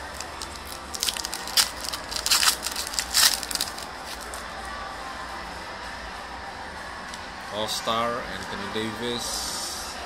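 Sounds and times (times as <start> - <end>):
foil wrapper crinkling and tearing: 0.0 - 4.4.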